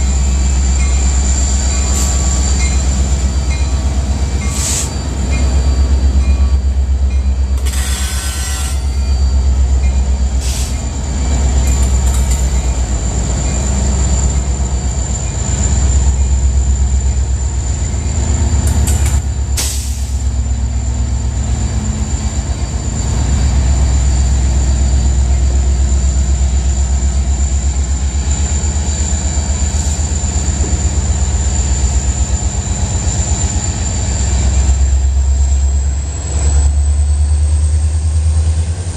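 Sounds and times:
locomotive engine rumble: 0.0 - 38.9
thin high squeal: 4.4 - 5.9.

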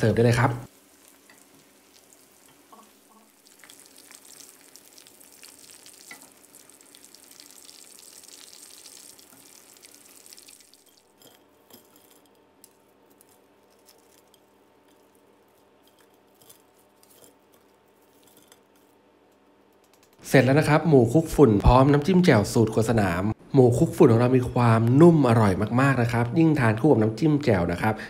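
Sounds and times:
hot oil sizzling: 0.0 - 11.6.

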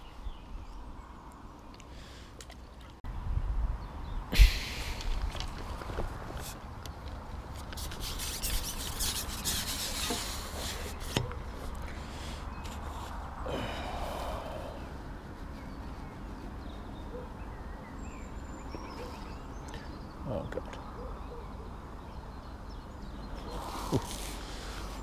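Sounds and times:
low wind rumble: 3.0 - 7.6, 10.2 - 25.0
faint bird calls: 9.4 - 21.8.

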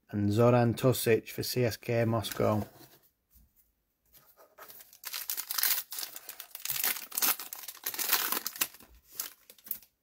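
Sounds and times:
foil wrapper crinkling: 4.8 - 10.0.

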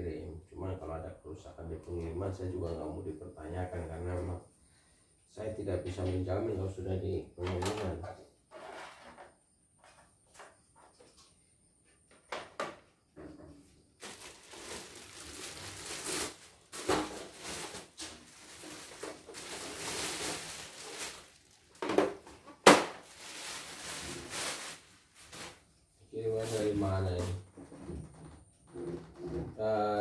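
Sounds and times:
plastic wrapping rustling: 14.0 - 27.4.

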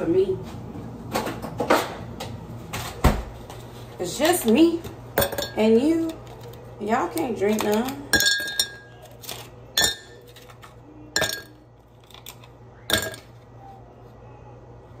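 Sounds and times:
ice cubes clinking in glass: 11.2 - 13.3.

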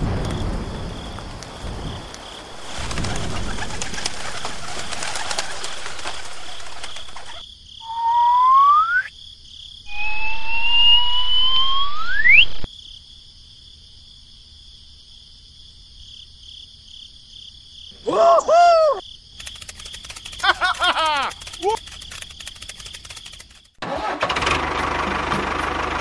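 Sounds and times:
heavy rain: 0.0 - 6.8
loud rising whistles: 7.8 - 9.1, 9.9 - 12.7
high insect drone: 18.9 - 23.8.

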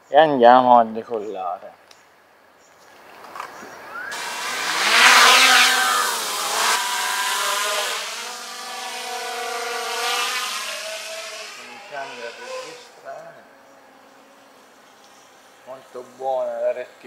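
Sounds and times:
drone propellers whining: 4.0 - 15.4.

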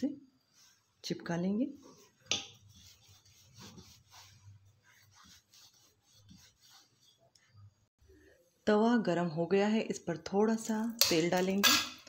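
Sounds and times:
rolling pin rubbing dough: 0.3 - 7.9.

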